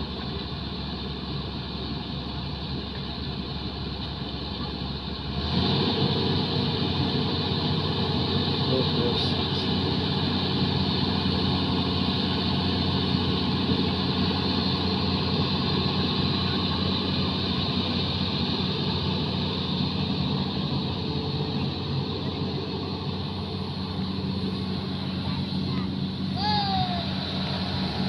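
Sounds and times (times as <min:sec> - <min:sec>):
excavator diesel engine humming: 0:00.0 - 0:28.0.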